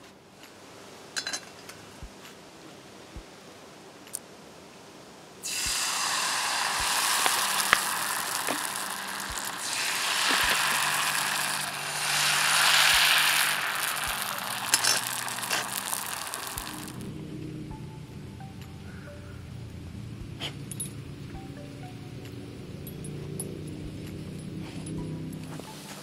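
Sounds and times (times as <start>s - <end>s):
batter sizzling in hot oil: 5.4s - 17.0s
small clicks: 6.8s - 17.1s.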